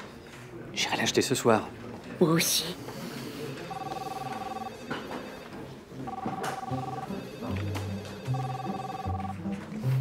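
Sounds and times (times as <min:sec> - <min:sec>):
telephone electronic trilling ring: 0:03.7 - 0:05.4, 0:06.1 - 0:09.4.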